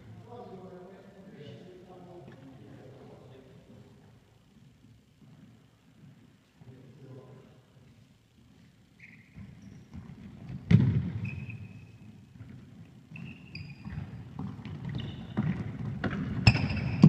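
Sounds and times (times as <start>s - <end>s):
trainers squeaking on floor: 9.0s - 10.0s, 11.2s - 12.0s, 13.1s - 15.6s, 16.4s - 17.0s
ball kicks echoing in hall: 9.0s - 17.0s.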